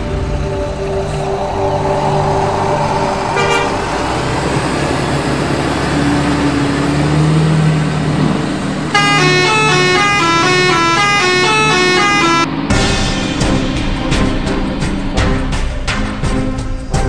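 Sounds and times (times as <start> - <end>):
bus engine running: 0.0 - 17.0
multi-tone bus horn tune: 3.3 - 4.7, 8.9 - 12.7
short horn toot: 9.0 - 12.5.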